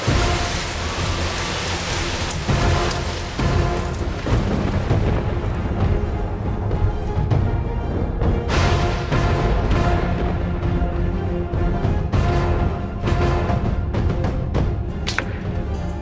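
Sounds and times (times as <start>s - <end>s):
heavy rain: 0.0s - 7.5s
low rolling thunder: 0.1s - 6.8s.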